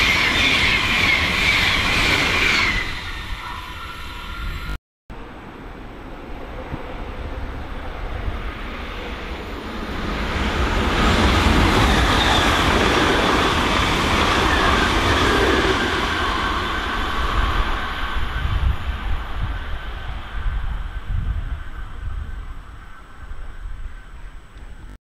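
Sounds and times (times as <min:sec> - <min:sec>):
electric train passing: 0:00.0 - 0:24.5.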